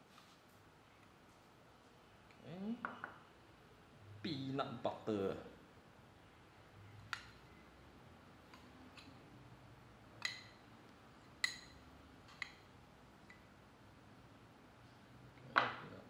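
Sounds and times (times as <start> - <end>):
spoon clinking on glass bowl: 11.4 - 11.8.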